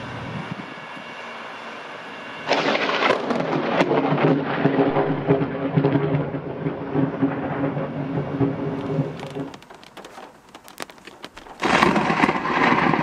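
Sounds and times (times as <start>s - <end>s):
crackling thunder: 2.5s - 13.0s.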